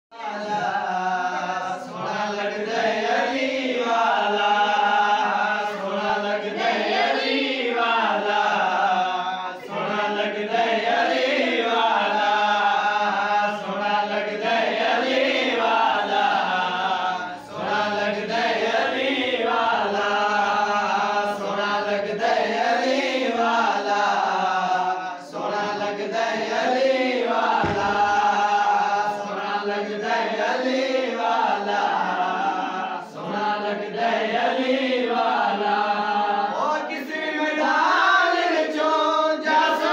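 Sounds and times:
men chanting: 0:00.2 - 0:39.9.

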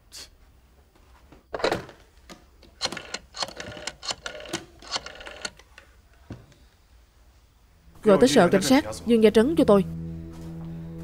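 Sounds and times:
telephone mechanical clicking: 0:02.8 - 0:05.8.

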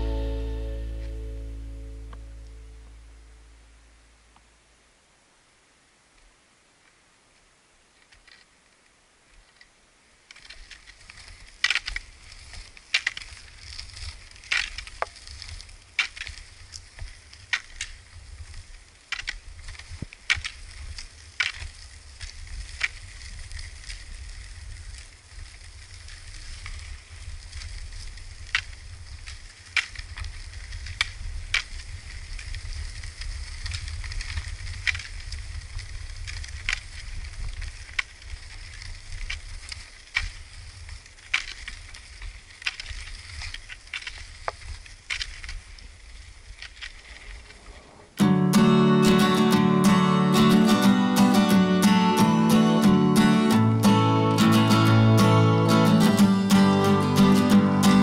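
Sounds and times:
pole tips clicking on gravel: 0:08.0 - 0:49.8.

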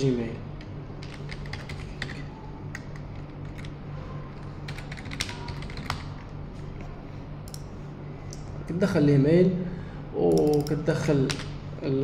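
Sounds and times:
low steady hum: 0:00.0 - 0:12.0
keyboard typing: 0:01.0 - 0:03.8, 0:04.4 - 0:06.3.

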